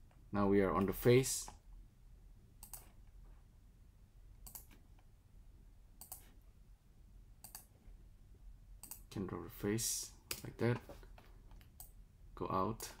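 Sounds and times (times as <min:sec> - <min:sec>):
faint low hum: 0:00.0 - 0:13.0
computer mouse clicking: 0:02.6 - 0:03.0, 0:04.4 - 0:05.1, 0:06.0 - 0:06.4, 0:07.4 - 0:07.7, 0:08.8 - 0:09.1, 0:11.1 - 0:12.0.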